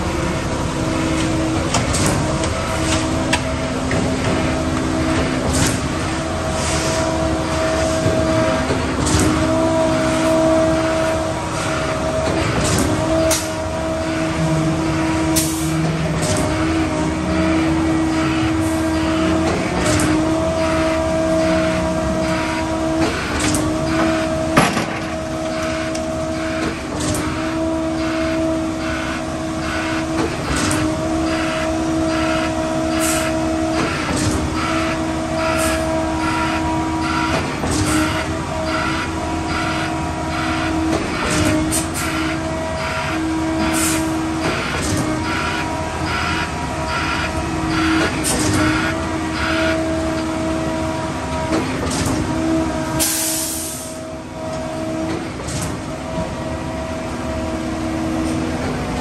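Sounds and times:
concrete mixer trucks whining: 0.0 - 59.0
metal clanks and knocks: 23.0 - 25.2.

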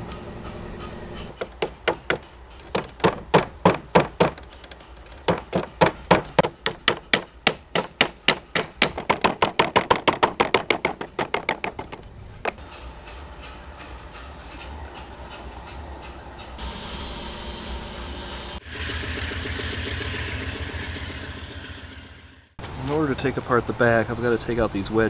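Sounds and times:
mallet knocking on wooden frame: 1.4 - 4.4, 5.2 - 12.6.

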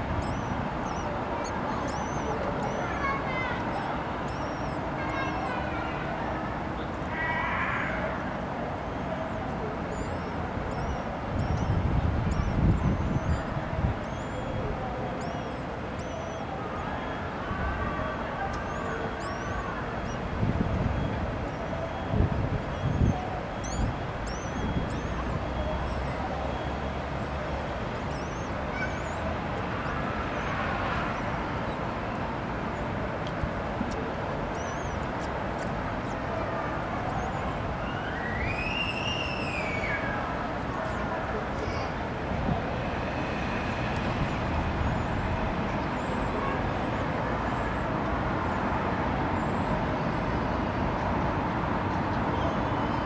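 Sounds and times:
city traffic rumble: 0.0 - 53.0
rushing background noise: 0.0 - 53.0
bird chicks cheeping: 0.2 - 5.6, 9.9 - 17.3, 18.5 - 20.2, 20.8 - 29.2, 34.5 - 35.1
faint high chirps: 0.2 - 5.6, 9.9 - 17.2, 18.0 - 20.2, 21.0 - 27.0.

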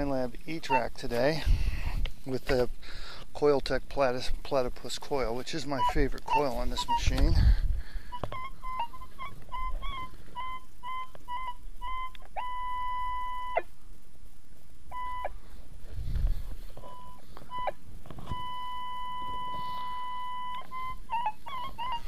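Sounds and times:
metal detector beeps and tones: 0.0 - 1.0, 5.5 - 7.5, 8.1 - 13.7, 14.9 - 15.4, 16.8 - 22.0.

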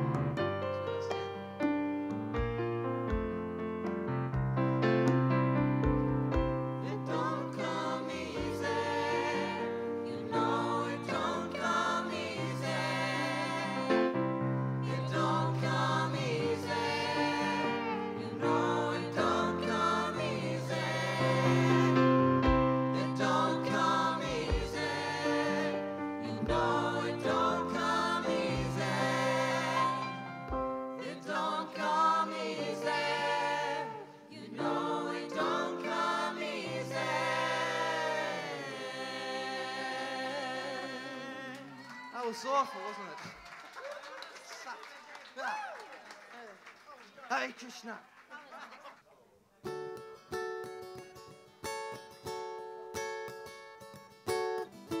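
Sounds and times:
keyboard accompaniment: 0.0 - 39.8
voices singing together: 6.4 - 41.9.

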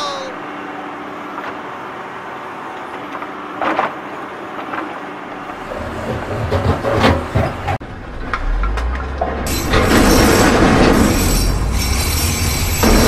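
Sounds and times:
low rumbling: 7.8 - 12.0.

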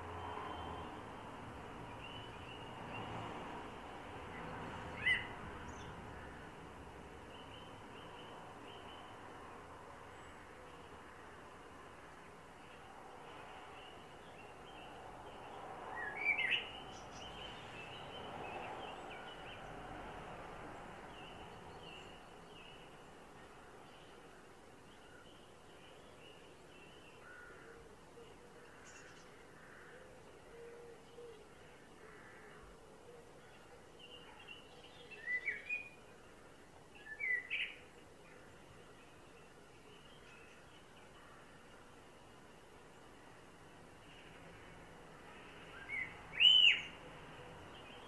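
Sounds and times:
steady background noise: 0.0 - 48.0
blackbird singing: 4.9 - 5.9, 15.9 - 19.6, 33.5 - 36.0, 37.0 - 41.4, 45.7 - 47.0.

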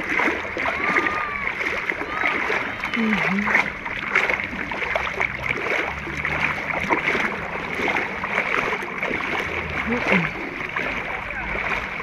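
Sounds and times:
seawater splashing and lapping: 0.0 - 12.0
voice in background: 2.9 - 3.6.

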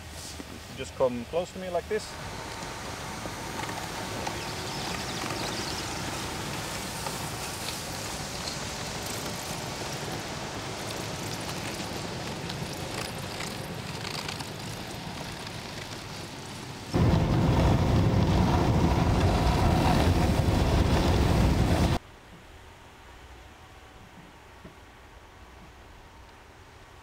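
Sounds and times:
tracks hissing on snow: 0.0 - 16.9.

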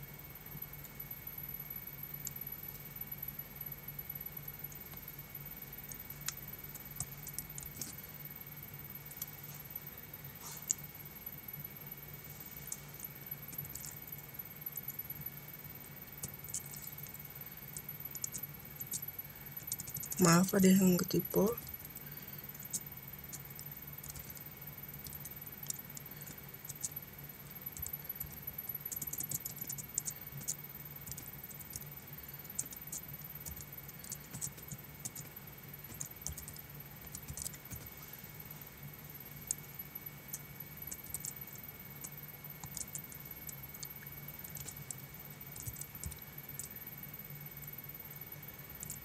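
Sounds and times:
steady low hum: 0.0 - 49.0
keyboard keystrokes clicking: 35.9 - 37.9.

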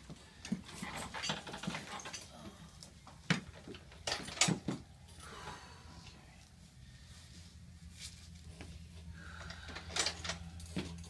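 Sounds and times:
clothing and table pads rustling: 6.6 - 9.1.

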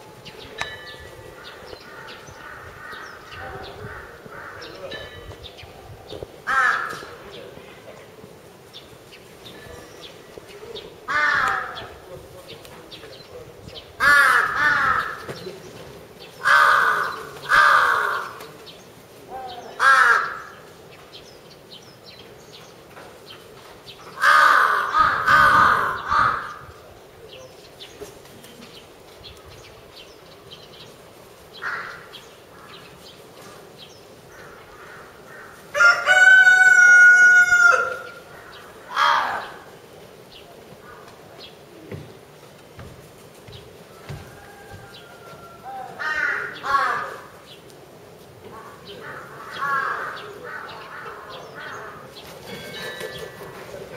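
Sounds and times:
crows cawing: 1.3 - 5.0, 6.4 - 7.2, 11.0 - 12.0, 14.0 - 15.4, 16.4 - 18.6, 19.4 - 20.7, 24.1 - 26.8, 31.6 - 33.0, 34.3 - 39.8, 43.9 - 47.6, 48.5 - 53.4
rooster crowing: 35.7 - 38.2, 43.9 - 47.0.

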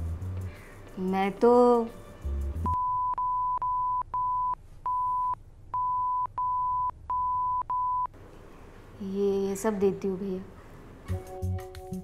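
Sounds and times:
censor bleep tone: 2.6 - 8.1.

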